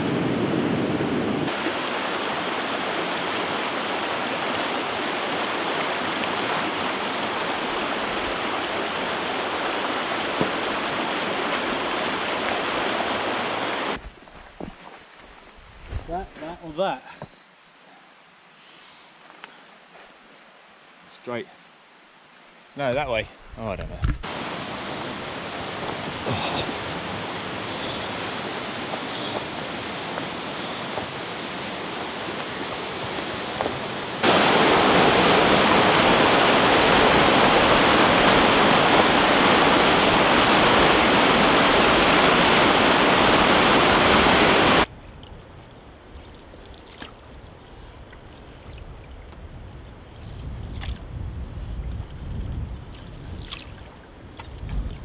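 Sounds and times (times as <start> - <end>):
river rapids rushing: 1.5 - 14.0, 24.3 - 44.9.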